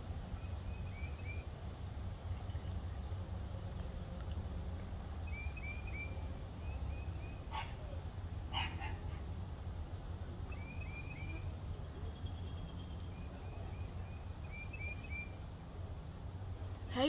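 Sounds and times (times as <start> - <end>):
small birds chirping: 0.2 - 1.5, 3.8 - 8.0, 10.2 - 15.6.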